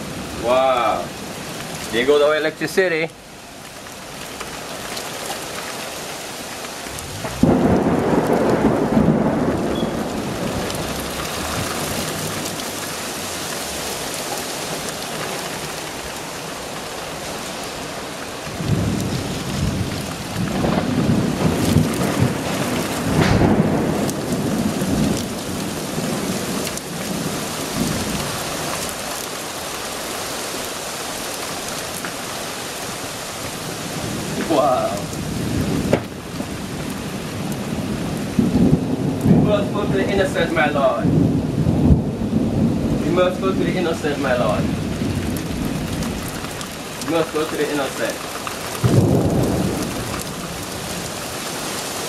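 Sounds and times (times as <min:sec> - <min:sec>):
rain falling: 0:00.0 - 0:52.0
thunder rumbling: 0:06.8 - 0:14.9, 0:18.4 - 0:29.0, 0:33.5 - 0:52.0.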